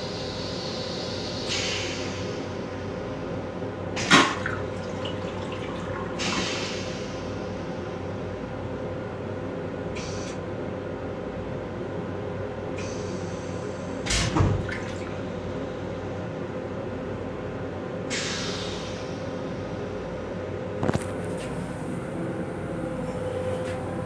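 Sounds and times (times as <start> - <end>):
railcar hum: 0.0 - 14.2, 14.8 - 24.0
toilet flush water hissing: 4.0 - 7.4.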